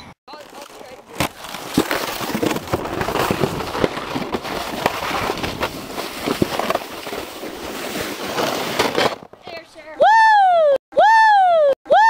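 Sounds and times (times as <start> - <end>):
footsteps crunching in snow: 0.3 - 9.8.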